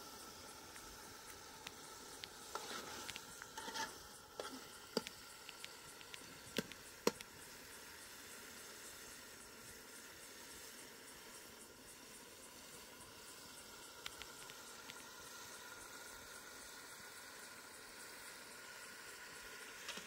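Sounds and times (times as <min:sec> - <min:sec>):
faint sizzling hiss: 0:00.0 - 0:20.0
ladle scraping metal pot: 0:02.5 - 0:04.6
sharp clicks: 0:04.9 - 0:07.4, 0:14.0 - 0:15.0.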